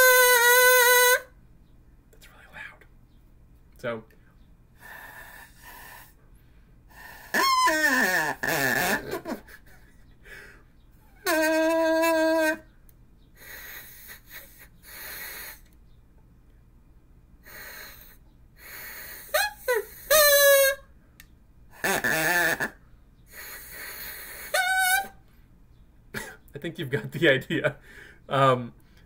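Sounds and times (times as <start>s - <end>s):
breathy blowing: 4.8s - 9.6s, 10.2s - 12.7s, 13.4s - 15.8s, 17.4s - 20.9s, 21.7s - 25.4s, 27.8s - 29.0s.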